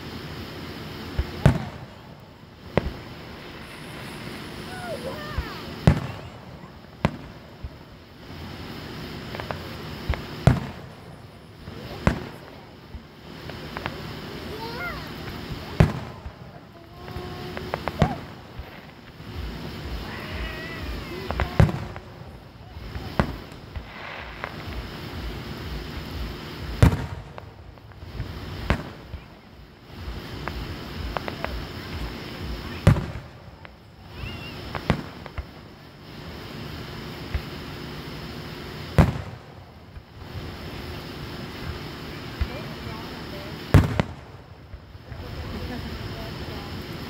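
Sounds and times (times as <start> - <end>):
fireworks booming: 0.0 - 47.0
aerial shell burst: 1.6 - 7.3.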